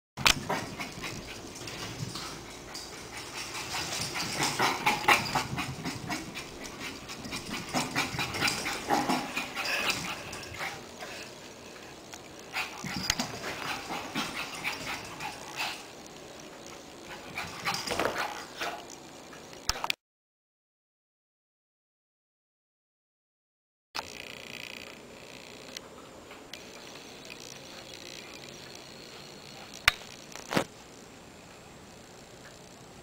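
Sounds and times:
puppy scuffling: 0.4 - 10.9.

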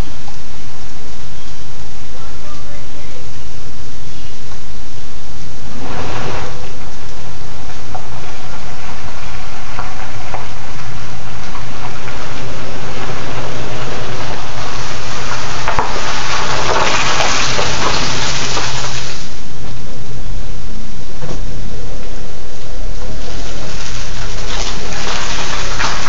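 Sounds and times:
low hum: 0.0 - 26.0
rain hissing on pavement: 5.6 - 19.8, 22.0 - 26.0
car tyres hissing through water: 5.7 - 19.5, 23.0 - 26.0.

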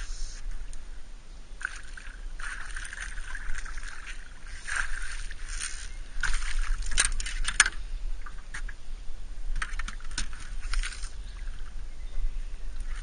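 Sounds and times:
fish thrashing and splashing: 1.6 - 7.7.

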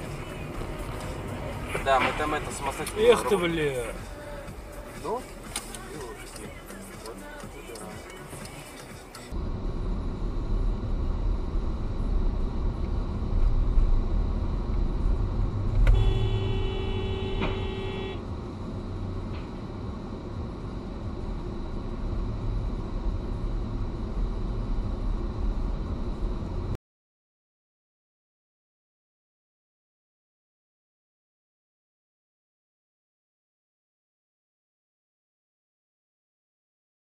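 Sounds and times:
car engine and road rumble: 0.0 - 26.8
car horn blast: 15.8 - 18.3.

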